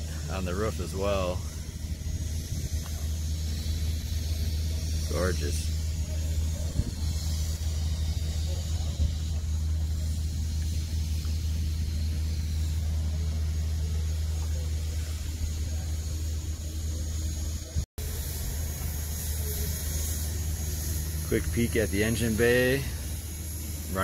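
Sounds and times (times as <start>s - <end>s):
car engine idling: 0.0s - 24.0s.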